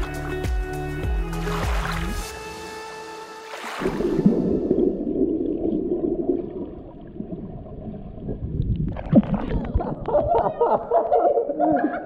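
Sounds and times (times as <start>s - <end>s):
gurgling bubbles and splashes: 3.5s - 10.4s.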